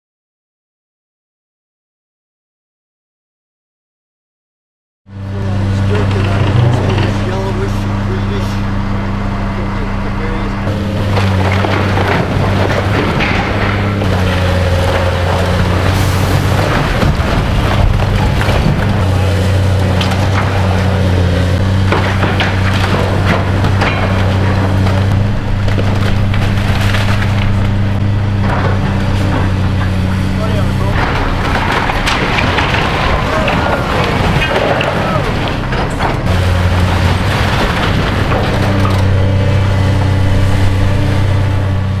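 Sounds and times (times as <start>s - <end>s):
diesel excavator engine running: 5.1s - 42.0s
falling bricks crashing: 10.6s - 42.0s.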